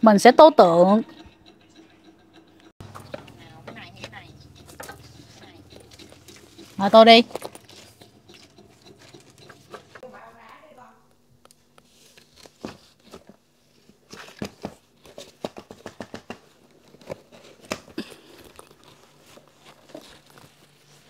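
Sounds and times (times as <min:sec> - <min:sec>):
paint pots and brushes clicking: 0:00.3 - 0:10.1, 0:14.2 - 0:21.0.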